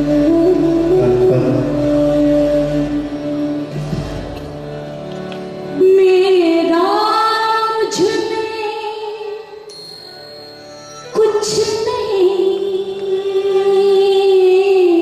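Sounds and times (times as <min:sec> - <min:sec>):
harmonium accompaniment: 0:00.0 - 0:15.0.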